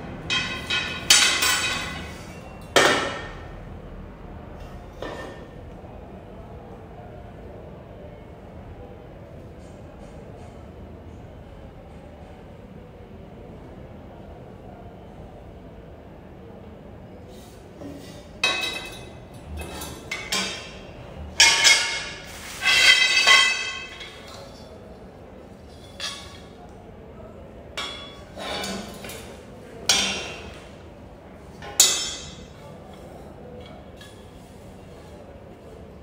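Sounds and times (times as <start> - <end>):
metal tubes knocking and clinking: 0.3 - 2.1, 21.4 - 24.4.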